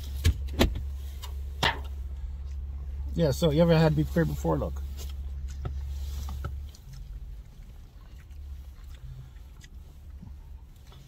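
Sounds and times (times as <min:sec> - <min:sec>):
car cabin rumble: 0:00.0 - 0:11.0.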